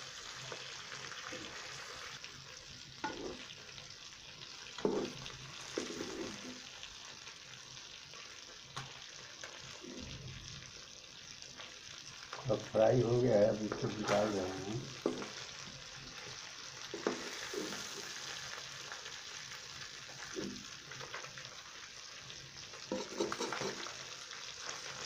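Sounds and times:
fish sizzling in hot oil: 0.0 - 25.0
metal ladle scraping pan: 3.0 - 3.4, 4.8 - 6.6, 22.9 - 24.0.

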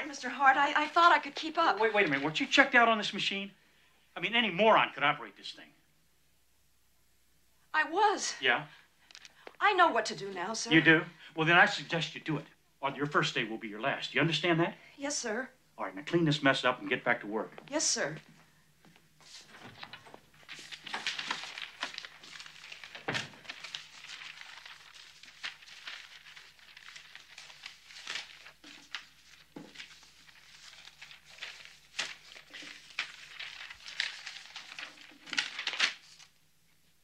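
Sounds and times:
paper rustling and crinkling: 0.1 - 2.8, 19.2 - 36.5.

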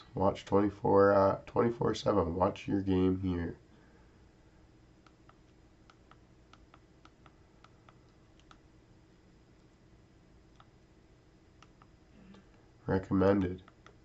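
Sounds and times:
faint remote clicks: 5.0 - 8.6.

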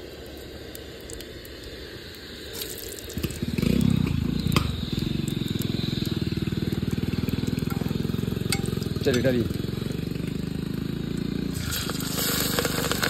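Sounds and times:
garlic frying in hot oil: 0.0 - 13.0
engine running: 3.0 - 13.0.

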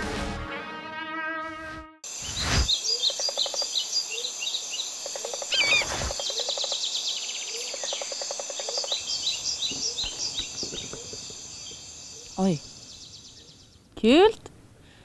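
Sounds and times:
birds chirping and trilling: 2.1 - 13.9
bird warbling call: 2.2 - 12.4.

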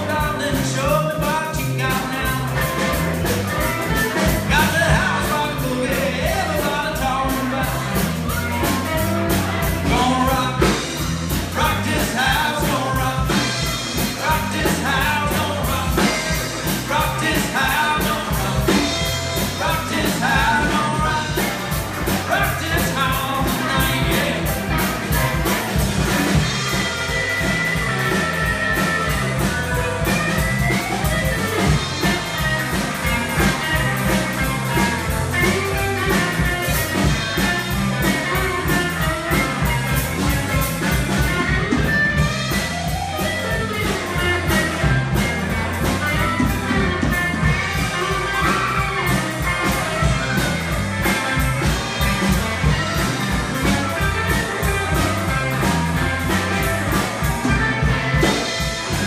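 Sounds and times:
person singing: 0.0 - 41.8
drum kit beat: 0.0 - 59.0
electric bass: 0.0 - 59.0
electric guitars: 0.0 - 59.0.

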